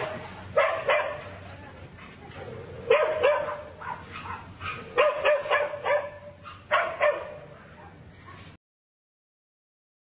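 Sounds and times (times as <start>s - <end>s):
dog barking: 0.0s - 1.4s, 2.8s - 7.6s.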